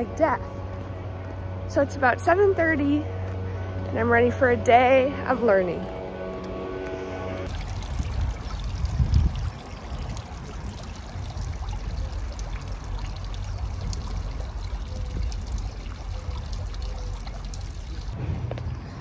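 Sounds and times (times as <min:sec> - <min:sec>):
water trickling in a fountain: 0:07.3 - 0:18.2.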